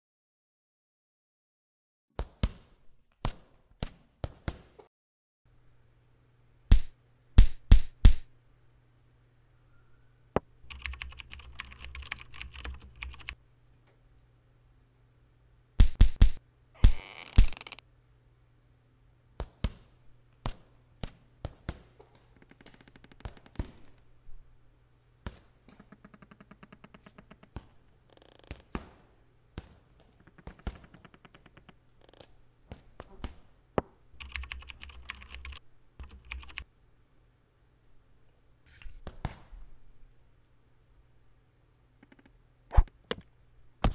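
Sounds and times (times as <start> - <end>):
fast ticks: 10.7 - 13.4, 34.2 - 36.6.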